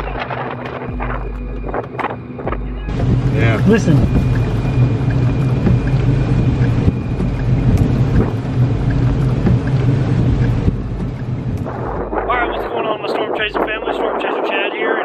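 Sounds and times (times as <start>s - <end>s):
truck engine and road drone: 0.0s - 14.4s
rushing wind: 0.0s - 15.0s.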